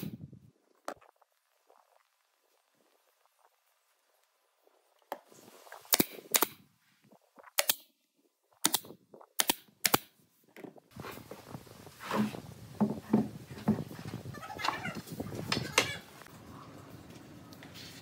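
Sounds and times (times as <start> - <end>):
nail gun firing into wood: 8.6 - 10.1
wooden boards knocking: 12.2 - 13.9.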